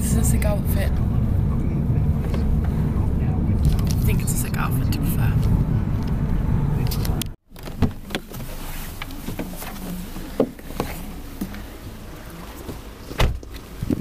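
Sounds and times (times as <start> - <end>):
car cabin road rumble: 0.0 - 14.0
knocks and clicks leaving car: 6.8 - 9.8, 12.7 - 14.0.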